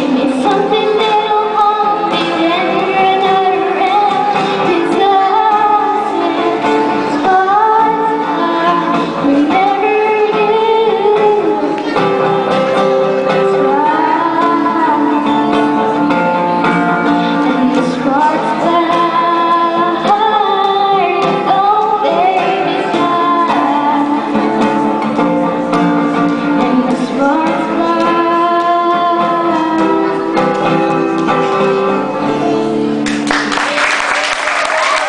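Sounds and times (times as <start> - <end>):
woman singing a pop ballad: 0.0 - 30.8
strummed acoustic guitar: 0.0 - 33.1
applause: 33.0 - 35.0.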